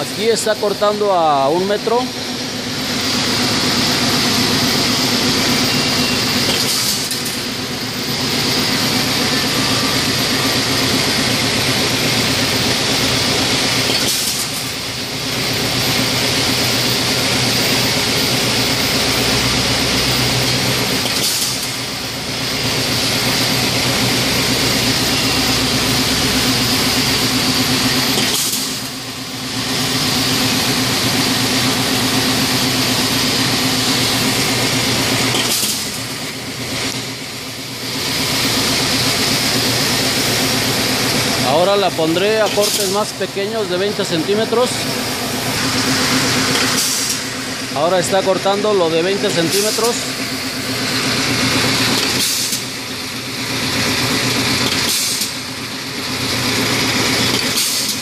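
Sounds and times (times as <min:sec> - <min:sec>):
wire straightening machine drone: 0:00.0 - 0:58.0
sharp hiss of wire cutting: 0:06.5 - 0:07.4, 0:13.8 - 0:14.7, 0:21.0 - 0:21.8, 0:28.2 - 0:28.9, 0:35.3 - 0:36.1, 0:46.0 - 0:47.3, 0:52.0 - 0:52.7, 0:54.6 - 0:55.4, 0:57.3 - 0:58.0.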